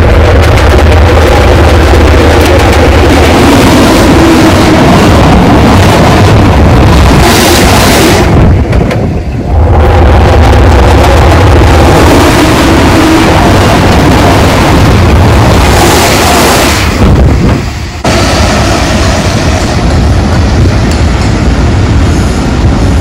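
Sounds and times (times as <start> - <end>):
diesel locomotive engine running: 0.0 - 23.0
wind noise on microphone: 0.0 - 23.0.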